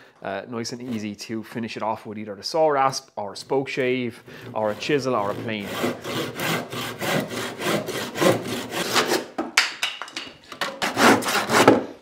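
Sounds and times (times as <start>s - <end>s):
handsaw cutting wood: 4.2s - 9.3s, 10.8s - 12.0s.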